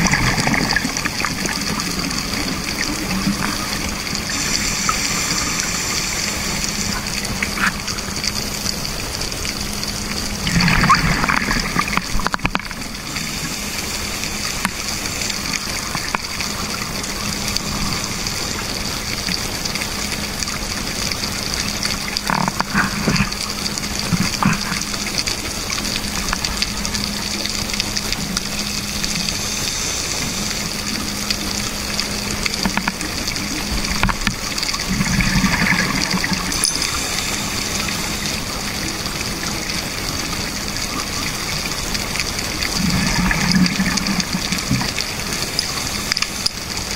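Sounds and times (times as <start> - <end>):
exhaled bubbles rushing: 0.0 - 46.9
scuba regulator breathing hiss: 4.3 - 7.1, 29.1 - 31.0, 36.8 - 38.5.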